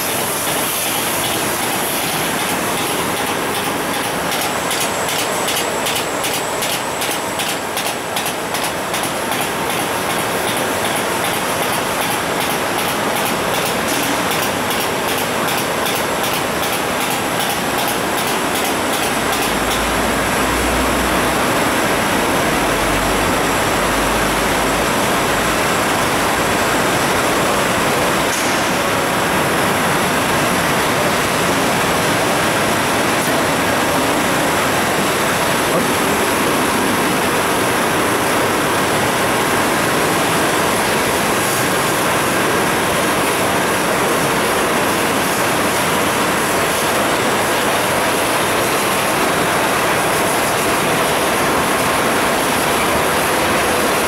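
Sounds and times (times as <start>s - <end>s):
machinery clattering: 0.0s - 20.1s.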